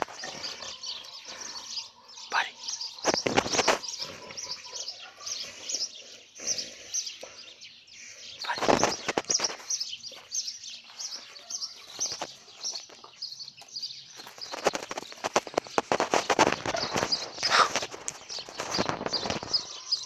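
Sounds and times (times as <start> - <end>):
small birds chirping: 0.0 - 20.0
loud noisy crunch: 14.2 - 19.5.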